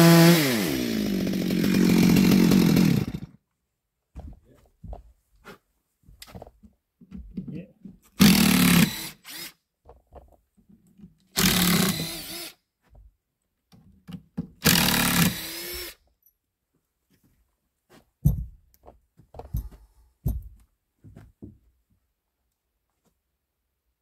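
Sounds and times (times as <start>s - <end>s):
electric drill running: 8.2s - 9.5s, 11.4s - 12.5s, 14.6s - 16.0s
knocks: 18.2s - 18.6s.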